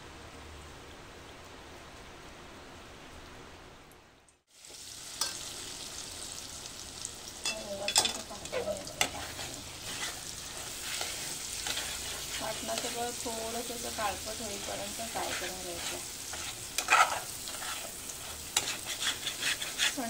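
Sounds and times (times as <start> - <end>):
steady hiss: 0.0 - 20.0
paste sizzling in hot oil: 4.5 - 20.0
spatula scraping metal pan: 7.5 - 20.0.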